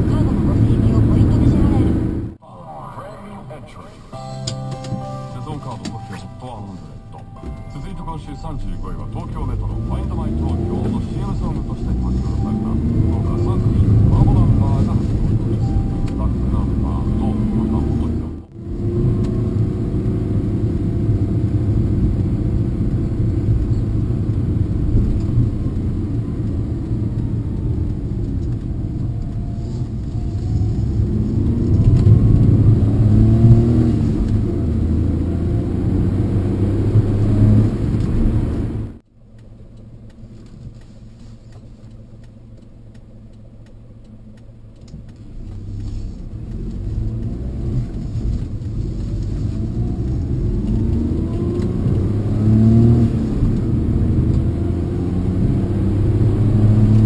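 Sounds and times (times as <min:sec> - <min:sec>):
van engine and road noise: 0:00.0 - 0:57.0.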